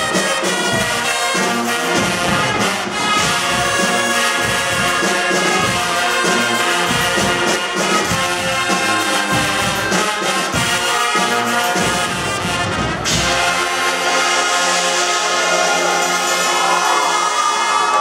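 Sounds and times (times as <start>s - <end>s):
brass band playing pop: 0.0s - 18.0s.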